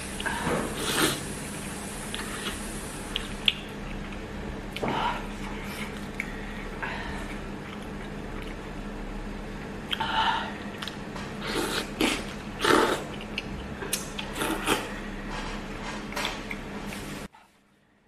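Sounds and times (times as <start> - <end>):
noodles slurped: 0.2 - 3.7, 10.7 - 15.0
wet chewing: 2.0 - 9.0, 9.6 - 15.0.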